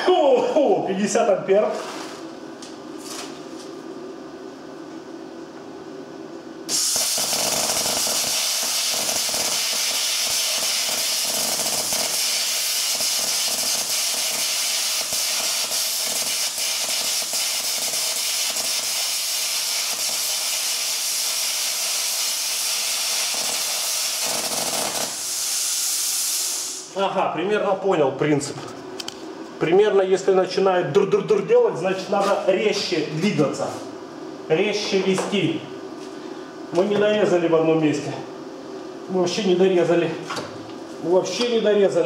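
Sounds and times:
plasma cutter arc hissing: 0:06.7 - 0:26.9.

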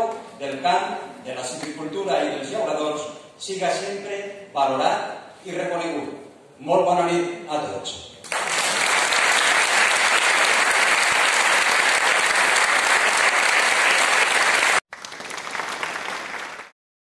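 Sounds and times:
audience applauding: 0:08.3 - 0:16.8.

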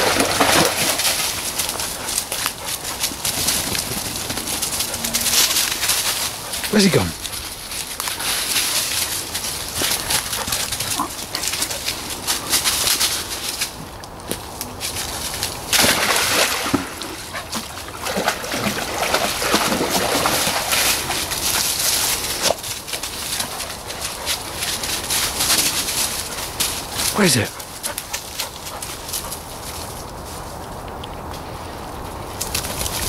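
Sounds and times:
dogs splashing in stream: 0:00.0 - 0:13.7, 0:14.8 - 0:29.7
dog whining: 0:04.8 - 0:05.6.

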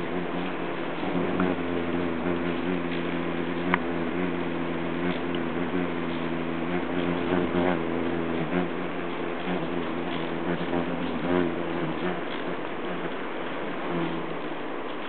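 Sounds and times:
hummingbird wings humming: 0:00.0 - 0:15.0.

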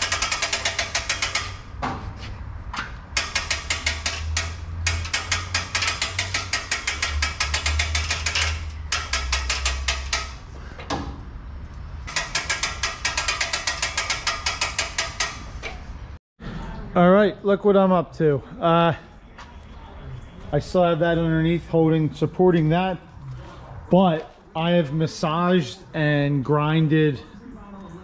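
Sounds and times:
hand ratchet clicking: 0:00.0 - 0:01.7, 0:03.1 - 0:10.9, 0:12.0 - 0:15.8.

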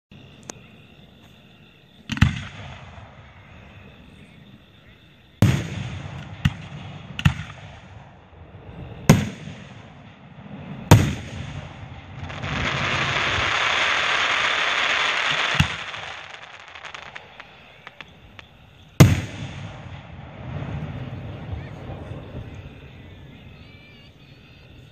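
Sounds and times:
firework crackling: 0:05.4 - 0:23.6
firework shells bursting: 0:09.1 - 0:20.4.

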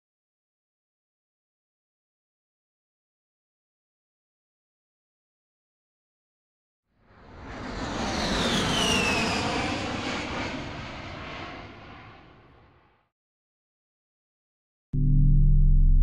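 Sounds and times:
whoosh with falling whistle: 0:08.1 - 0:09.8.

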